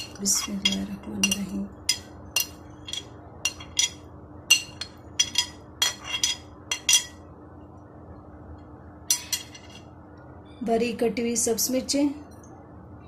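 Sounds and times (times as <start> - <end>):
metal spoon clinking on glass: 0.0 - 7.2.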